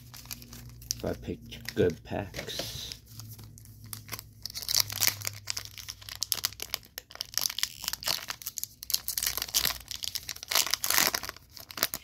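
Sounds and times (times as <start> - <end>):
foil wrapper crinkling: 0.0 - 12.0.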